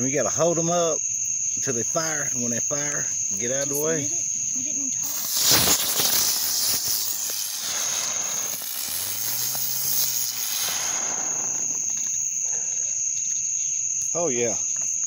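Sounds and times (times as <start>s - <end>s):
crickets chirping: 0.0s - 15.0s
firework hissing: 4.6s - 12.8s.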